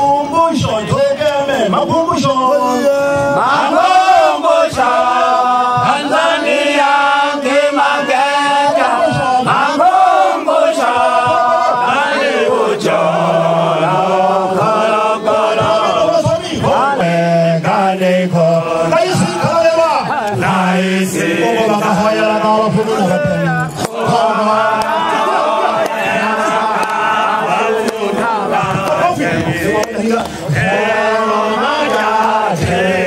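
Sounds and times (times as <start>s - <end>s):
man singing into microphone: 0.0s - 3.9s, 6.9s - 9.9s, 15.6s - 24.8s
group singing along: 2.5s - 33.0s.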